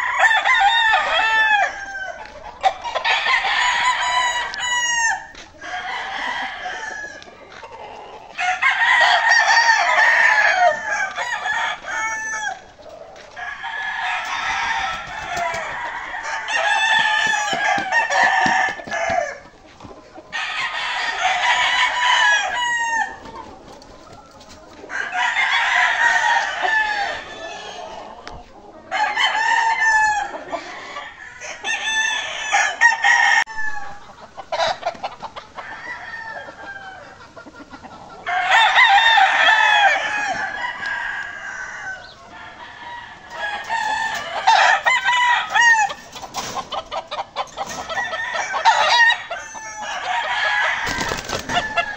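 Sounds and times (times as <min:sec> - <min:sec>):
roosters crowing: 0:00.0 - 0:51.9.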